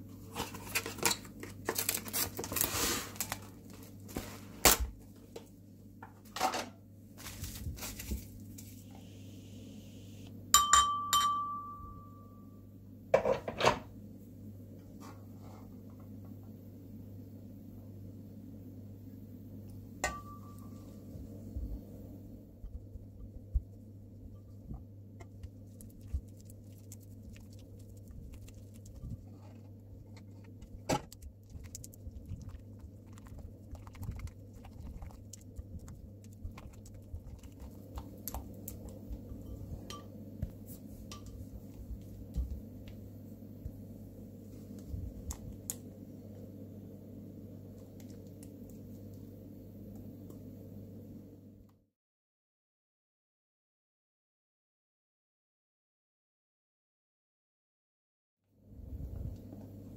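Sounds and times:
low hum: 7.6s - 13.1s, 15.7s - 51.8s.

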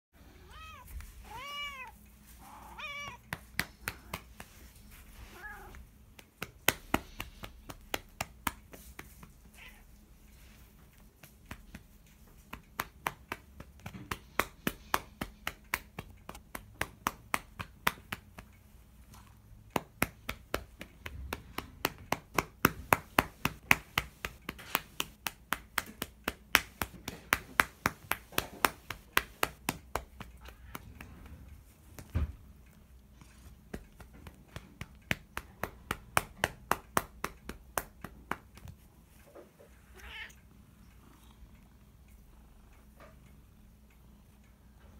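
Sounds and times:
cat meowing: 0.4s - 3.3s, 39.9s - 40.4s
hand slapping cat: 3.0s - 9.6s, 10.5s - 18.5s, 19.2s - 32.5s, 33.2s - 38.9s.

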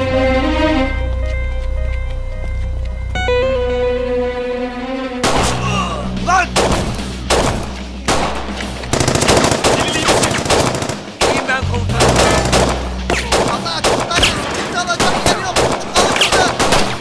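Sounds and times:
held music chord: 0.0s - 9.0s
rapid gunfire: 6.6s - 17.0s.

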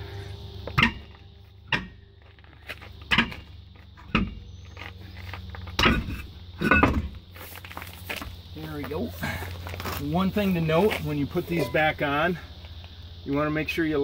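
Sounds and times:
steady low hum: 0.0s - 14.0s
heavy metal knocks and clunks: 3.1s - 4.5s, 5.7s - 7.2s.

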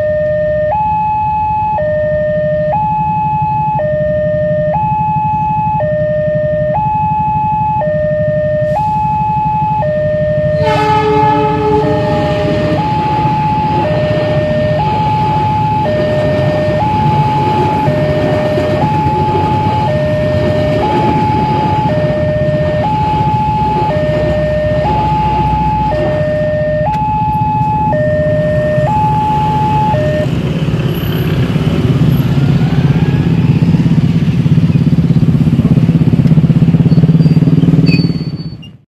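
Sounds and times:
level crossing two-tone alarm: 0.0s - 30.4s
motorcycle engines: 0.0s - 38.8s
passing train rumble: 8.1s - 38.8s
train horn blast: 10.5s - 15.3s, 23.1s - 26.6s.

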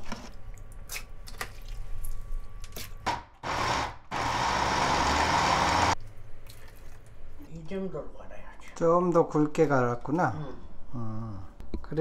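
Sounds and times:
blender grinding: 3.4s - 6.0s.

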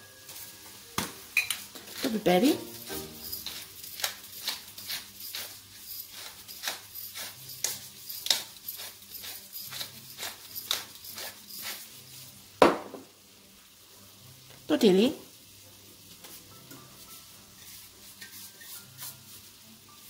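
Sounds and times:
pepper mill grinding clicks: 6.2s - 11.3s.

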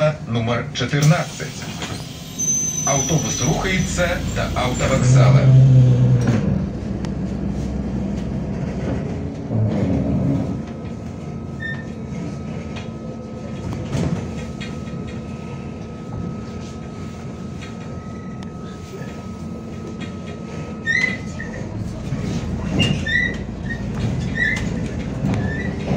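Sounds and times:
bus engine rumble: 0.0s - 25.9s
road noise: 1.3s - 12.5s, 18.6s - 25.9s.

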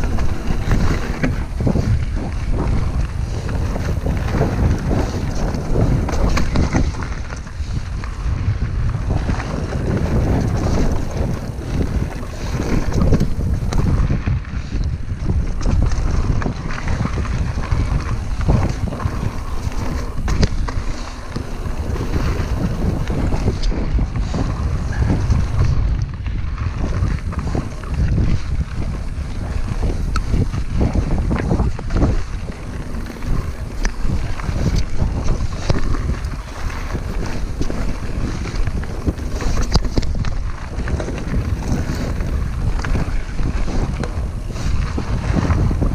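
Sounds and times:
bike clicks and knocks: 0.0s - 45.9s
bike rolling on gravel: 0.0s - 45.9s
wind buffeting microphone: 0.0s - 45.9s.

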